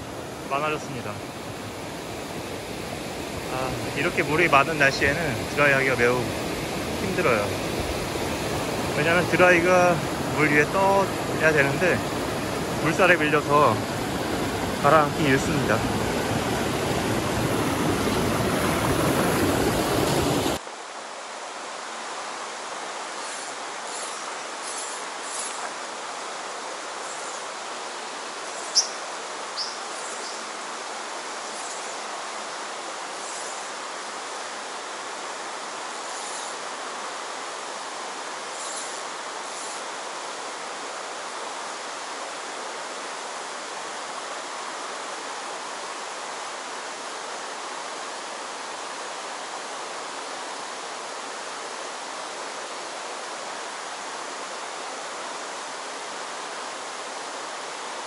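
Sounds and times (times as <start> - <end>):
water rushing over rocks: 0.0 - 28.4, 32.0 - 58.0.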